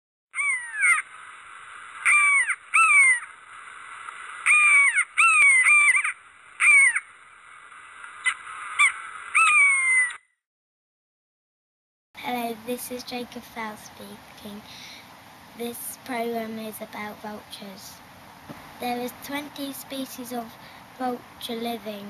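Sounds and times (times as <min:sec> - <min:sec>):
large bird calling: 0:00.4 - 0:01.1, 0:02.0 - 0:03.3, 0:04.4 - 0:07.1, 0:08.2 - 0:10.2.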